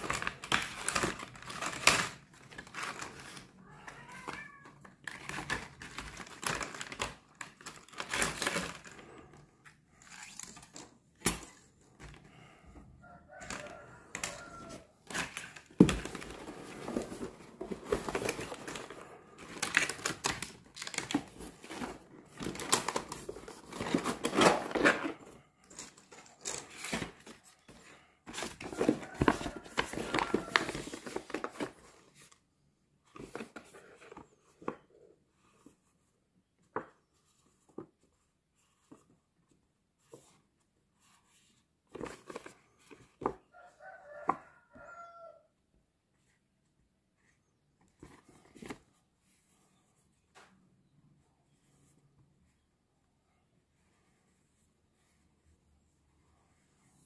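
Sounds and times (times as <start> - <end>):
paper packaging rustling and tearing: 0.0 - 3.5, 5.0 - 11.6, 13.4 - 32.4.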